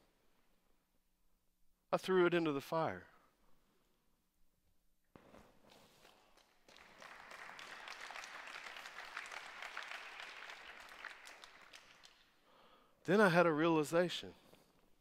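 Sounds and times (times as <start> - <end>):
faint audience applause: 6.1 - 12.7.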